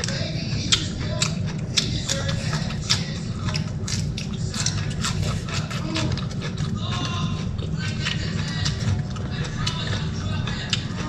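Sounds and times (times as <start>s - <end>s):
chewing and mouth smacks: 0.0s - 11.0s.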